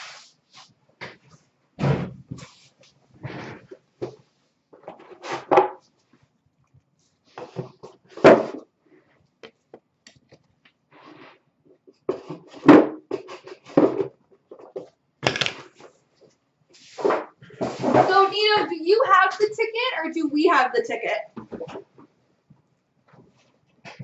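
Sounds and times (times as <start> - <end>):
objects knocking and scraping: 3.2 - 5.9, 11.9 - 16.0, 17.0 - 18.6.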